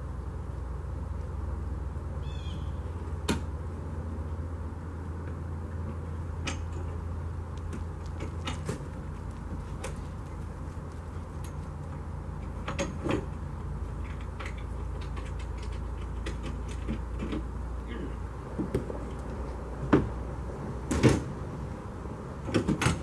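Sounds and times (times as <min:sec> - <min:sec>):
steady low rumble: 0:00.0 - 0:16.2
metal clunks and knocks: 0:05.2 - 0:07.1, 0:07.7 - 0:10.1, 0:12.4 - 0:17.5, 0:18.5 - 0:19.2, 0:19.8 - 0:20.2, 0:20.8 - 0:21.3, 0:22.4 - 0:23.0.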